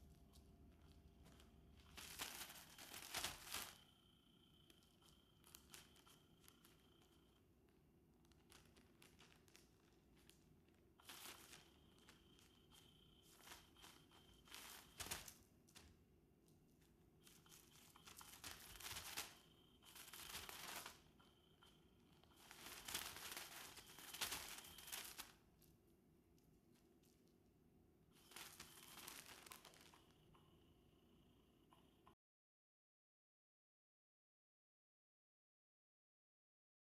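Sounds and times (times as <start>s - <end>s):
toy wand rustling under fabric: 0.0s - 7.4s, 8.1s - 27.4s, 28.1s - 30.2s.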